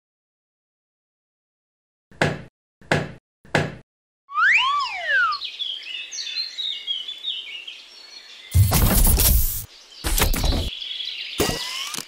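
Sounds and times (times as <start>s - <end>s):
rising and falling whistle effect: 4.3s - 5.4s
birdsong chirping: 4.3s - 12.0s.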